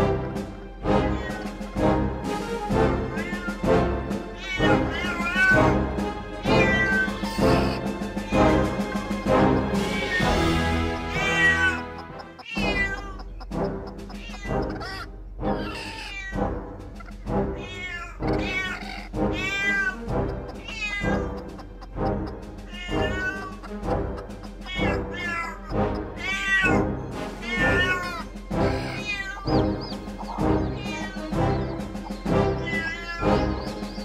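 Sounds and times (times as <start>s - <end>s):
background music: 0.0s - 34.0s
cat meowing: 1.0s - 1.6s, 3.1s - 3.6s, 4.4s - 5.8s, 6.4s - 8.7s, 9.9s - 13.4s, 14.1s - 16.4s, 17.0s - 21.5s, 22.7s - 23.7s, 24.6s - 31.3s, 32.6s - 33.5s.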